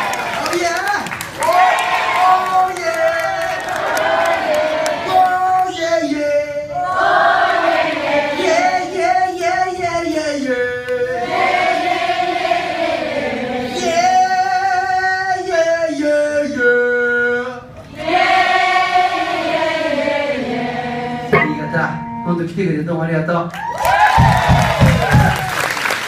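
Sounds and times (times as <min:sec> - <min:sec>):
crowd singing along: 0:03.5 - 0:05.4, 0:06.6 - 0:09.2, 0:10.5 - 0:14.1, 0:17.6 - 0:22.2.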